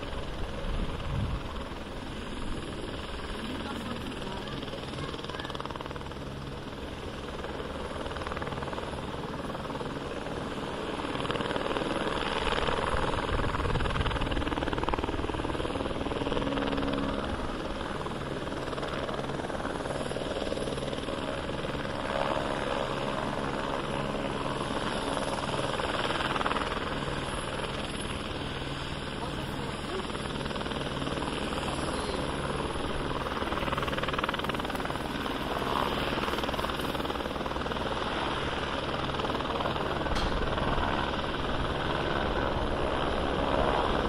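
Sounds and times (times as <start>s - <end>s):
helicopter rotor and engine: 0.0s - 44.0s.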